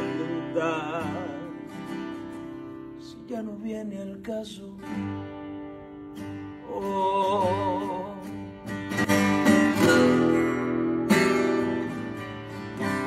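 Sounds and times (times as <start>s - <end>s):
person singing with vibrato: 0.0s - 2.1s, 6.6s - 8.7s
acoustic guitar strumming: 0.0s - 13.0s.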